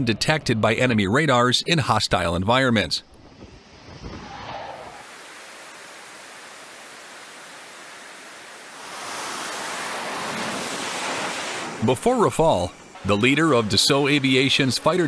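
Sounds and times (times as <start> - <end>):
jet engine rushing hiss: 3.2 - 15.0.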